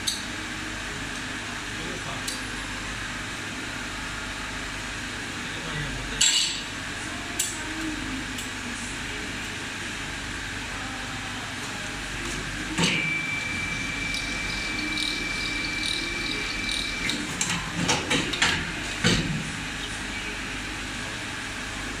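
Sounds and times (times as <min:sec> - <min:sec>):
factory hum: 0:00.0 - 0:22.0
high machine whine: 0:10.0 - 0:22.0.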